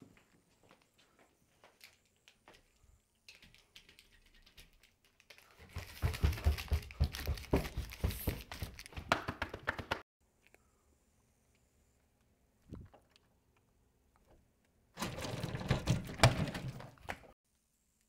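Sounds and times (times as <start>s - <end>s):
heavy footsteps on carpeted stairs: 5.6s - 9.2s.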